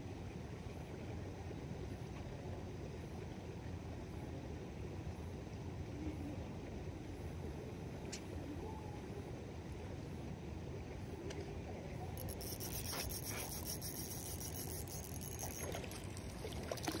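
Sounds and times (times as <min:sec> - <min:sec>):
fishing reel cranking: 0:12.2 - 0:16.6
fish splashing water: 0:12.2 - 0:17.0.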